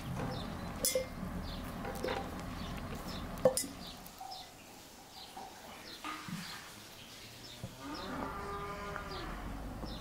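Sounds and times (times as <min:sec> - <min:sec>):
small bird chirping: 0:00.0 - 0:10.0
metal spoon clinking on pot: 0:00.8 - 0:01.2.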